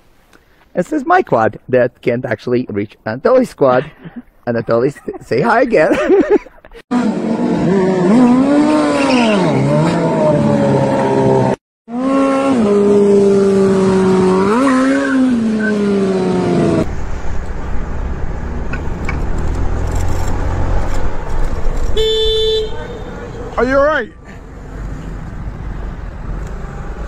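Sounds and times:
motorcycle engine revving: 6.9 - 23.5
wind and road noise: 12.5 - 27.0.

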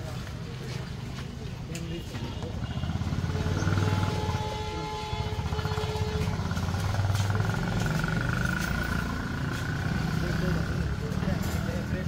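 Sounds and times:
motorcycle engine running: 5.4 - 11.0.

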